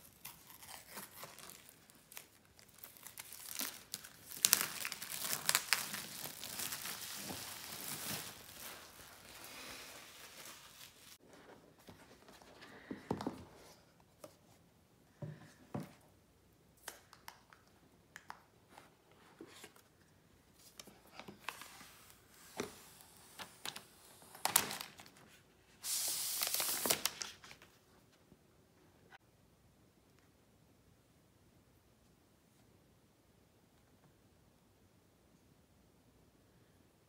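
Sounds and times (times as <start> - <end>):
paper tearing and crinkling: 0.0 - 11.2.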